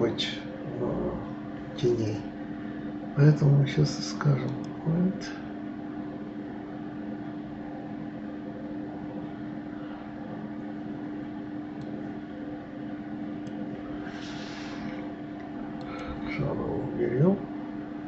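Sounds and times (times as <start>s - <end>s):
machine hum: 0.0s - 18.0s
faint clicks: 15.4s - 16.1s.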